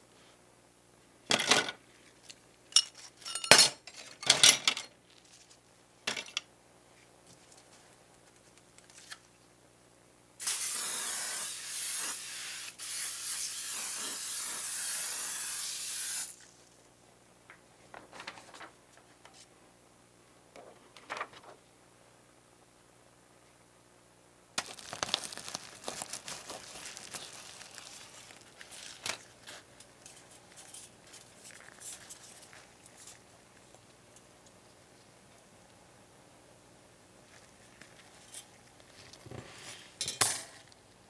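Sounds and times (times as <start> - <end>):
aerosol can hissing: 10.4 - 16.4.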